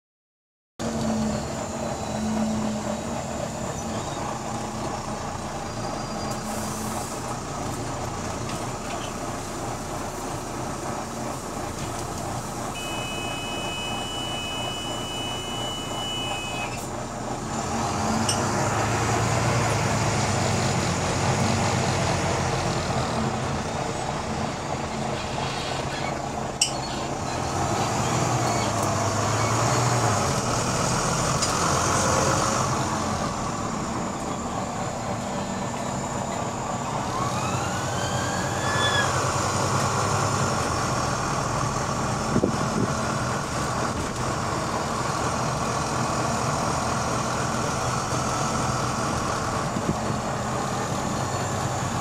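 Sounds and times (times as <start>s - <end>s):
bus diesel engine: 0.8s - 52.0s
two-note electronic beep: 12.8s - 16.8s.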